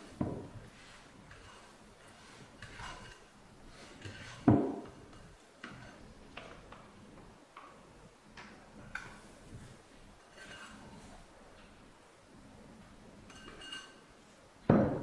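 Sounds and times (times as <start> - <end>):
thump: 14.7 - 15.0.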